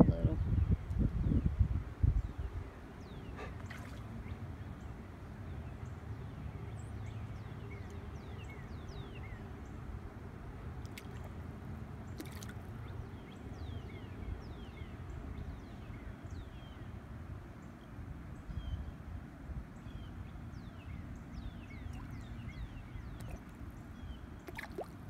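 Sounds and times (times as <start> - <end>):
birds chirping: 2.2 - 9.9, 19.8 - 24.9
water dripping and lapping: 3.4 - 4.4, 10.8 - 11.4, 12.0 - 12.8, 23.0 - 23.8, 24.4 - 25.0.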